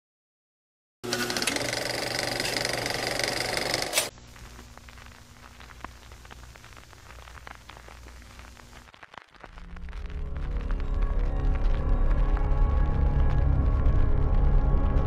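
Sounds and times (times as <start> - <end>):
film projector clatter: 1.0 - 4.1
film hiss with crackles and pops: 4.1 - 15.0.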